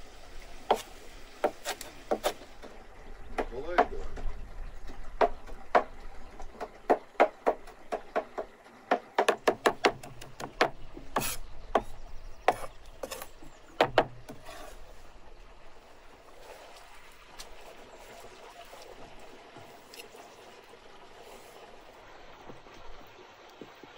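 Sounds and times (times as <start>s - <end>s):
knife chopping on wooden board: 0.7s - 2.4s
knife scraping board: 11.2s - 11.5s, 12.5s - 13.4s, 14.3s - 14.9s.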